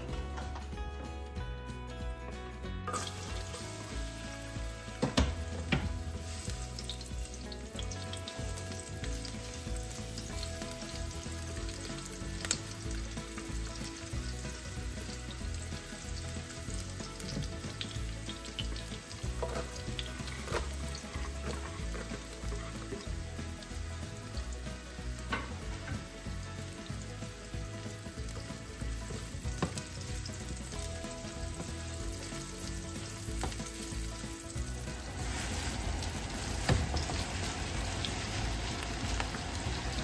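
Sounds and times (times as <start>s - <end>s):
food sizzling in a pan: 2.9s - 40.0s
utensil knocking against pan: 5.0s - 6.1s.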